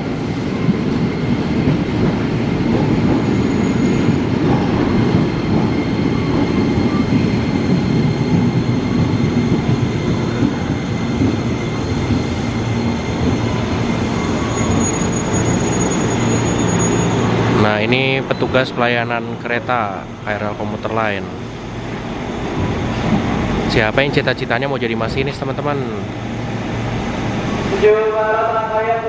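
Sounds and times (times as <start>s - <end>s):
train wheels rumbling: 0.0s - 29.0s
thin high squeal: 14.1s - 17.3s.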